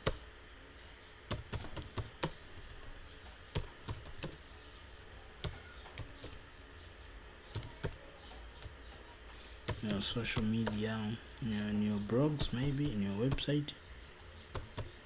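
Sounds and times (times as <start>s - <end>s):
keyboard keys clicking: 1.3s - 2.9s, 3.5s - 4.4s, 7.5s - 8.0s, 9.6s - 10.9s, 12.4s - 13.5s.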